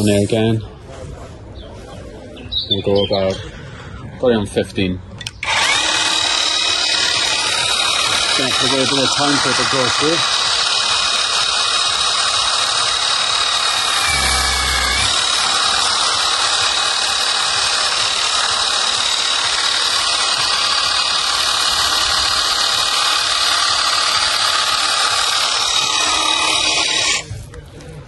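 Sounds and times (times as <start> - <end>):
pump motor whine: 9.2 - 27.2.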